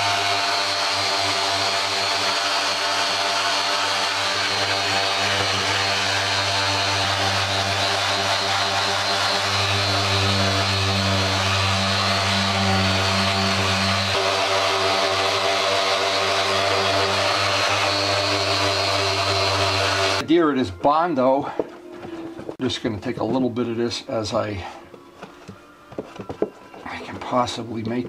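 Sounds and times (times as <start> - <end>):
electric sander running: 0.0 - 20.2.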